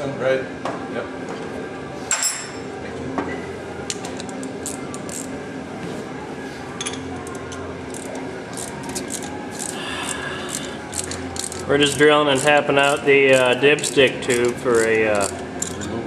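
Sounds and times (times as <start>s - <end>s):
steady low hum: 0.0s - 16.0s
socket wrench clicks and scrapes: 7.3s - 11.7s, 12.4s - 16.0s.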